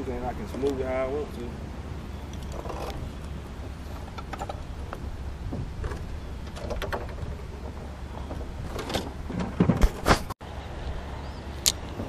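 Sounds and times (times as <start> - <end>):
steady low rumble: 0.0 - 9.6
gear knocking in metal boat: 4.0 - 10.1.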